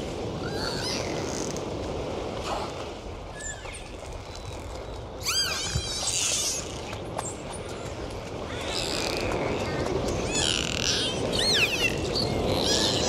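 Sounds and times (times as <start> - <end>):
dolphins whistling underwater: 5.2 - 7.4, 8.0 - 13.0.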